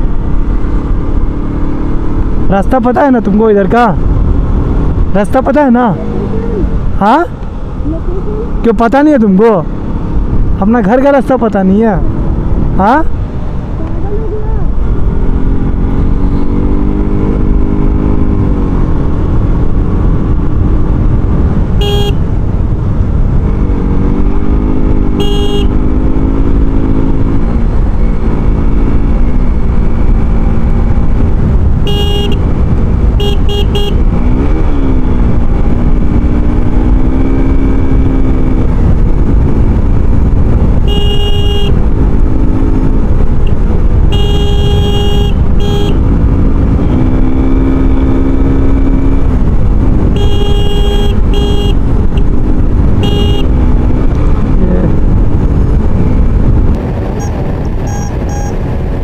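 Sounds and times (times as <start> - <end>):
vehicle engine rumbling: 0.0 - 59.0
short horn beeps: 21.8 - 22.2, 25.2 - 25.8, 31.8 - 32.4, 33.2 - 34.0, 40.8 - 41.8, 44.1 - 46.0, 50.2 - 51.8, 53.0 - 53.5, 57.2 - 58.6.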